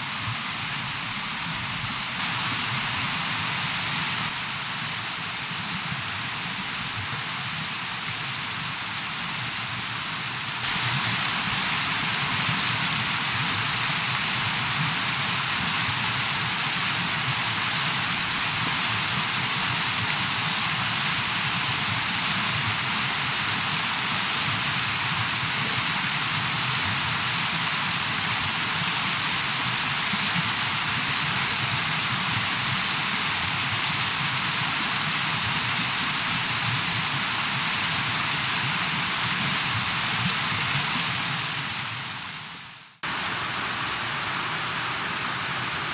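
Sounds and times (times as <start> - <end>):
river rapids roaring: 43.0 - 45.9.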